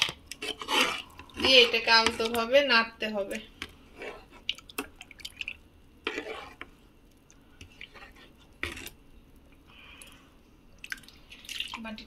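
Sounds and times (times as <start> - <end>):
metal ladle scraping saucepan: 0.0 - 2.4, 3.9 - 4.4, 6.0 - 6.7, 7.8 - 9.0.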